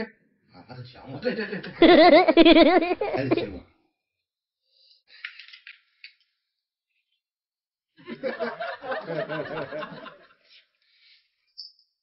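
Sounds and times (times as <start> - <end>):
person chuckling: 1.8 - 3.6.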